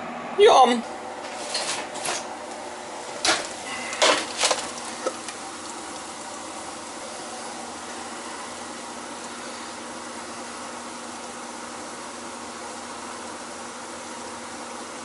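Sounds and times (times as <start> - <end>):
steady background hum: 0.0 - 15.0
metal baking sheet clattering: 3.2 - 4.7.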